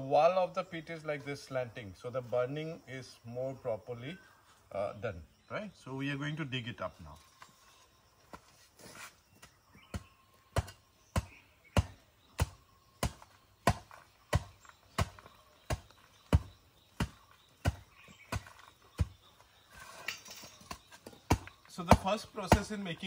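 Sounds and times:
hoe chopping into dirt: 8.9 - 22.9.

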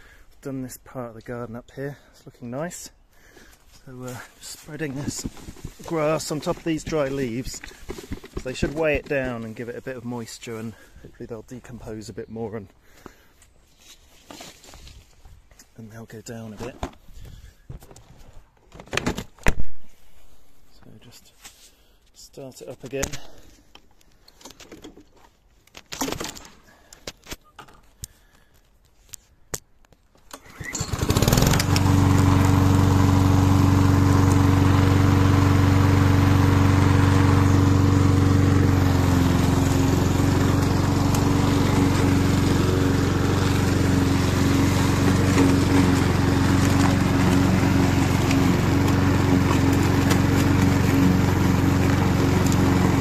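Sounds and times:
lawn mower engine starting and running: 2.7 - 12.0, 30.2 - 53.0.

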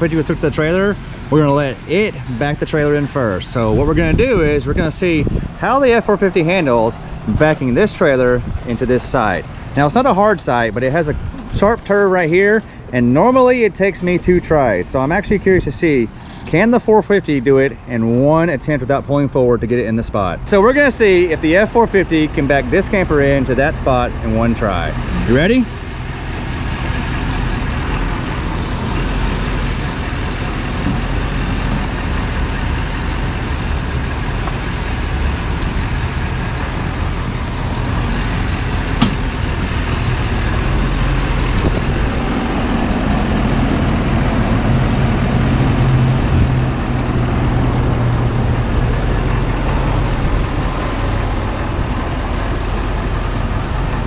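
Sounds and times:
diesel truck engine running: 0.0 - 54.0.

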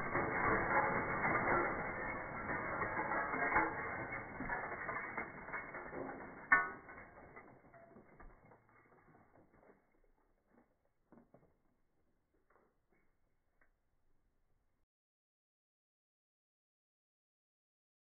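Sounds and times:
sharp crack: 0.0 - 7.5
broken glass crackling and tinkling: 0.0 - 10.2.

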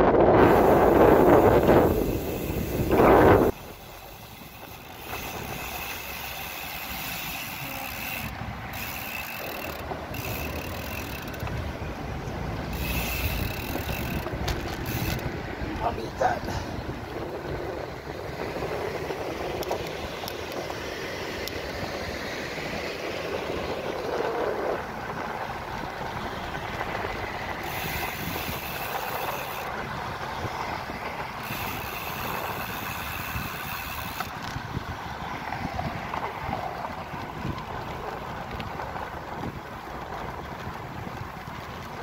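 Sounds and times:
road traffic passing: 0.0 - 42.0
wind rushing over microphone: 0.0 - 42.0.

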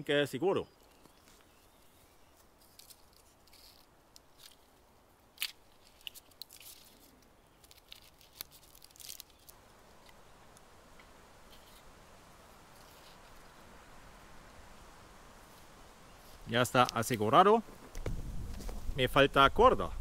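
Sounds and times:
cord scraping against bark: 0.8 - 4.8, 5.4 - 10.2, 11.4 - 11.9, 12.7 - 13.6.

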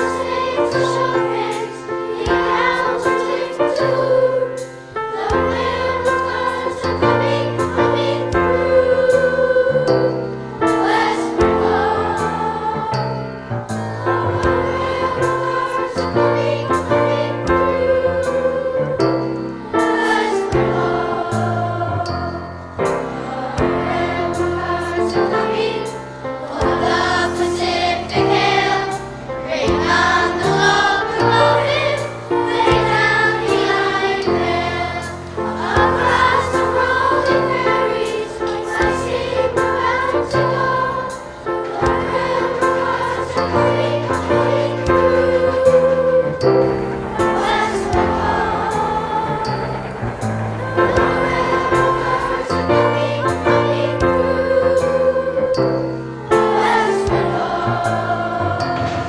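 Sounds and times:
choir singing: 0.0 - 59.0
low instrumental accompaniment: 0.0 - 59.0.

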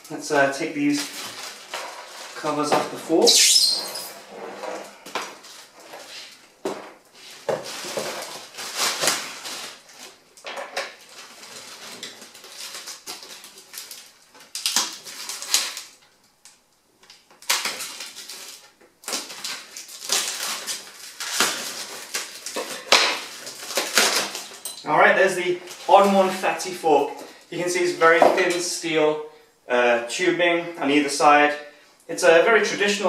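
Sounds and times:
plastic wrap and foam crinkling: 0.0 - 4.2, 5.0 - 28.8.

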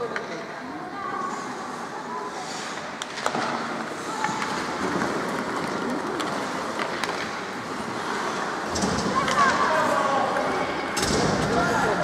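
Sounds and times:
skates hissing on ice: 1.3 - 3.0
hockey sticks and puck clacking: 2.6 - 12.0.

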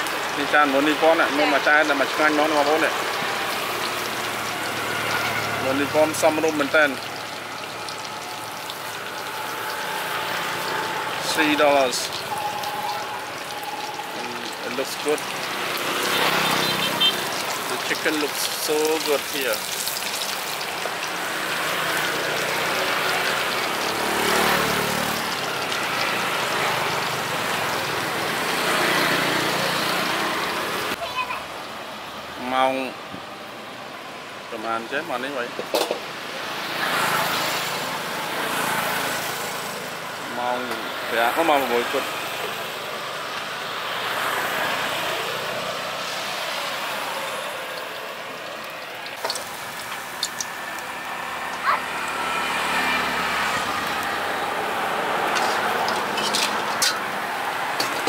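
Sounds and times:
passing traffic: 0.0 - 58.0.

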